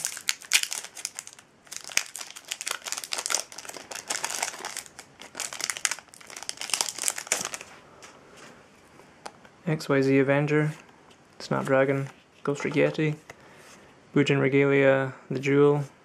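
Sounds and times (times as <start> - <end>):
foil wrapper crinkling: 0.0 - 7.7.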